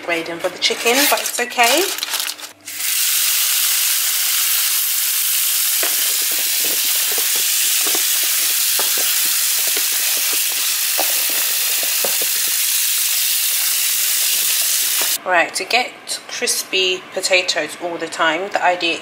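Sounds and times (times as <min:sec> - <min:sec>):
tap water running into pan: 0:02.7 - 0:15.2
potato chunks knocking and splashing: 0:05.4 - 0:12.6.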